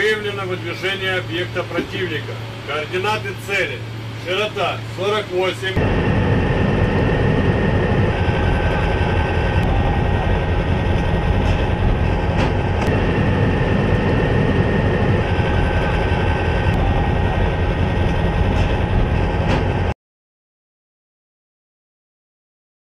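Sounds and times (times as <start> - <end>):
diesel truck engine rumbling: 0.0 - 20.0.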